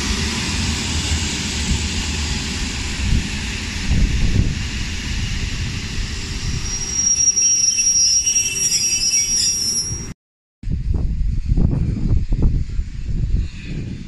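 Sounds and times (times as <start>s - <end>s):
train rumbling: 0.0s - 10.2s
wheels squealing on rails: 2.3s - 10.2s.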